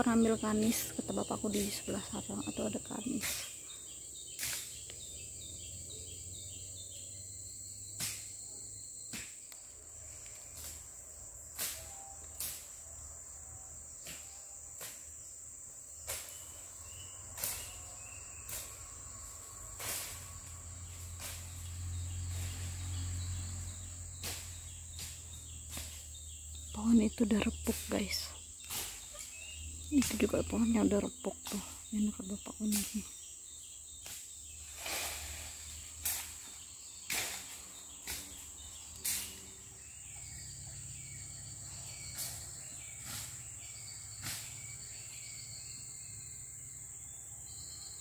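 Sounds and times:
rainforest insects droning: 0.0s - 48.0s.

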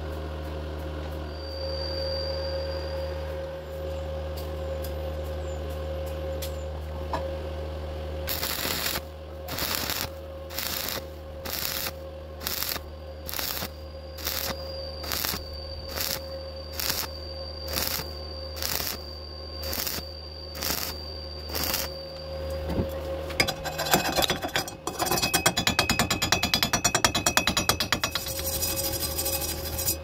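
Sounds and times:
steady hum: 2.6s - 30.0s
welding arc crackling: 8.3s - 22.0s.

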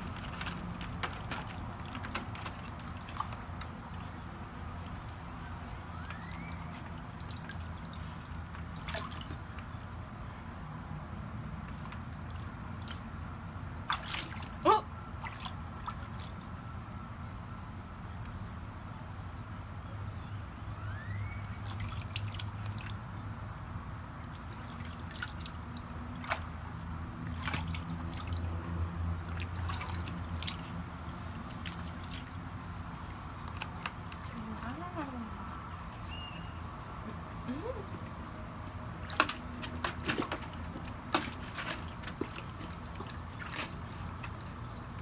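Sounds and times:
faint low hum: 0.0s - 45.0s
dog splashing in water: 6.0s - 9.6s, 13.8s - 16.5s, 24.2s - 34.8s, 38.9s - 45.0s.

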